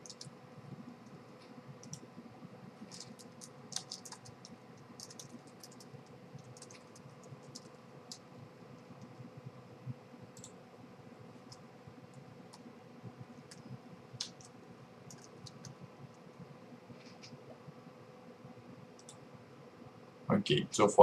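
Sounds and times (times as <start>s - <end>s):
keyboard and mouse clicks: 0.0s - 0.3s, 1.8s - 2.0s, 2.8s - 9.2s, 10.4s - 10.6s, 13.4s - 15.8s, 19.0s - 19.2s
low steady hum: 0.0s - 21.0s.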